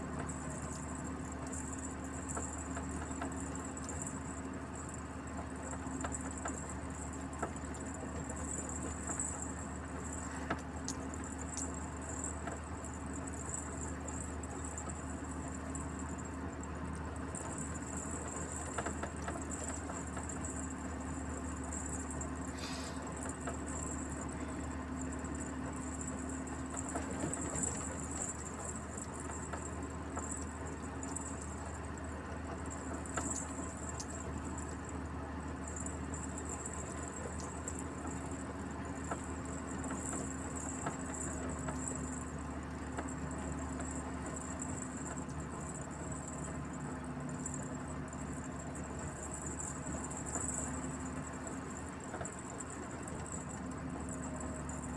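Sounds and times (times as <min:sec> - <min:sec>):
truck engine drone and road noise: 0:00.0 - 0:54.9.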